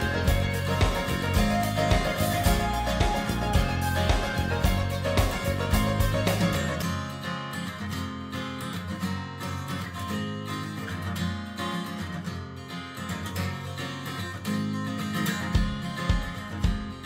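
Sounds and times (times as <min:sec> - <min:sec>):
low bass thumps: 0:00.0 - 0:06.5
strummed guitar music: 0:00.0 - 0:17.0.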